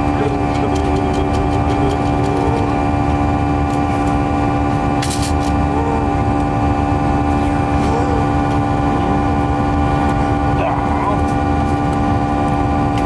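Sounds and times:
soft voices: 0.0 - 2.9, 5.5 - 6.3, 7.4 - 9.6, 10.6 - 11.3
aircraft cabin drone: 0.0 - 13.0.

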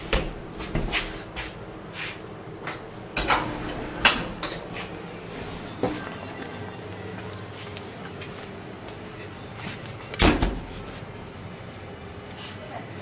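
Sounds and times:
footsteps on hard floor: 0.0 - 2.9.

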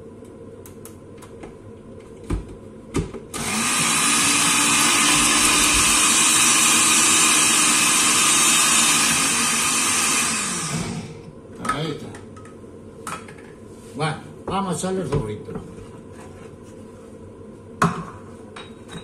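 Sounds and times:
blender motor whirring: 3.3 - 11.3.

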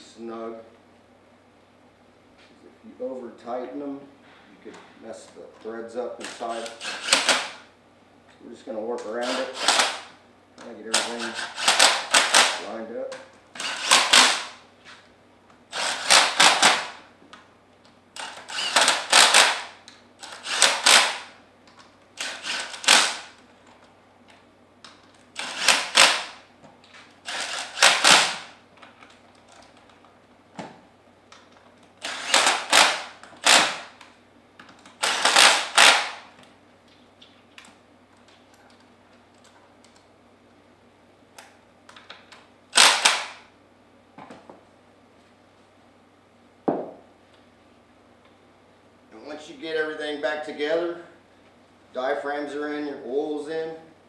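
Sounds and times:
impact wrench hammering: 20.3 - 21.3, 25.4 - 26.4, 27.3 - 28.5, 35.0 - 36.3.

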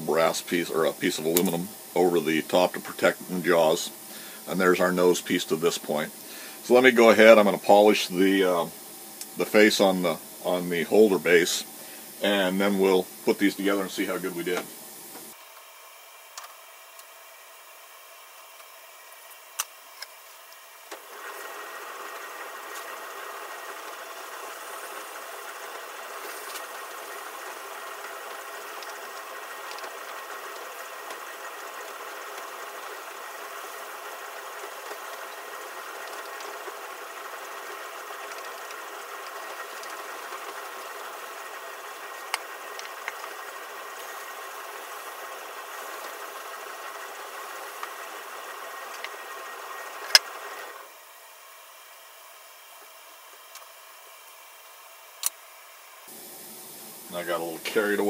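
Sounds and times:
lathe running: 0.0 - 15.5, 20.2 - 51.0, 56.1 - 58.0
sandpaper on spinning workpiece: 21.3 - 48.8.

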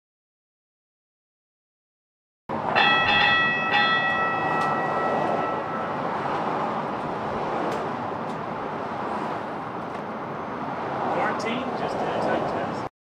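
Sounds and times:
rushing noise inside train cab: 2.5 - 12.9
train bell ringing: 2.7 - 7.2.

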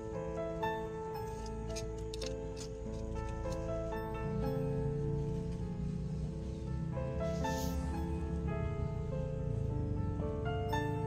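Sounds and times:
gentle instrumental music: 0.0 - 11.0.

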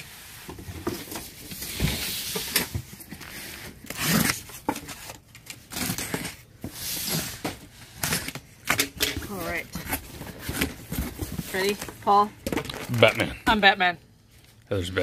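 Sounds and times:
cardboard scraping: 9.3 - 12.0.

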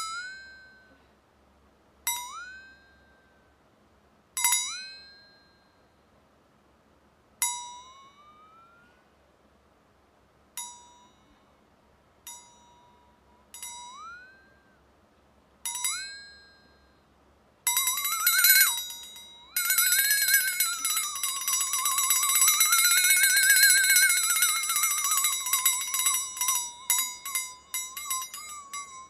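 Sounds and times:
short pinging beeps: 17.7 - 29.0.

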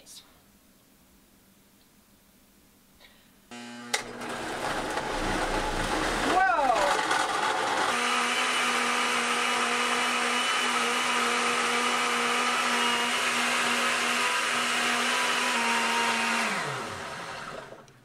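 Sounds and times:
blender motor winding down: 3.5 - 17.9
blender running: 3.5 - 17.9.

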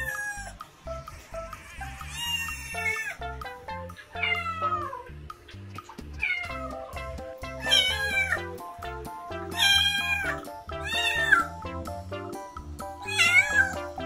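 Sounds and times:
kitten meowing: 0.0 - 0.5, 1.3 - 3.2, 4.1 - 5.1, 7.6 - 8.5, 9.5 - 11.5, 13.0 - 13.9
background music: 0.0 - 14.0.

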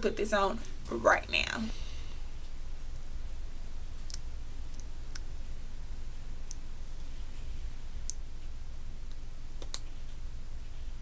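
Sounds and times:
low hum: 0.0 - 11.0
wet lip clicks: 4.0 - 5.3, 8.0 - 8.2, 9.1 - 9.9.

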